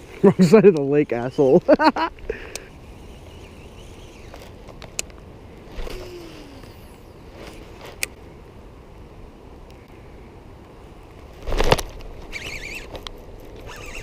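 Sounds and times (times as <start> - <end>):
fishing reel spool whirring: 2.3 - 4.8, 5.6 - 7.7, 12.2 - 14.0.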